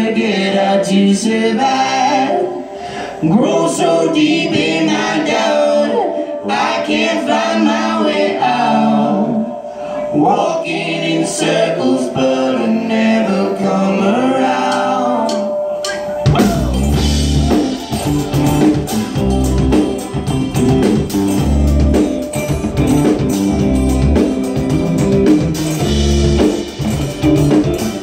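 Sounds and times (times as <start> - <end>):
live band instrumental: 13.0 - 28.0
steady kick drum beat: 16.3 - 28.0.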